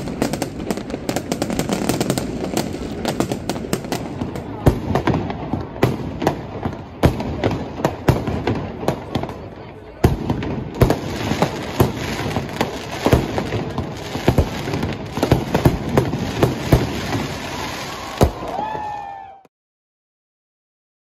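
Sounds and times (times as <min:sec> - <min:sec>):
firecrackers crackling and banging: 0:00.0 - 0:19.0
falling firework whistle: 0:16.7 - 0:19.5.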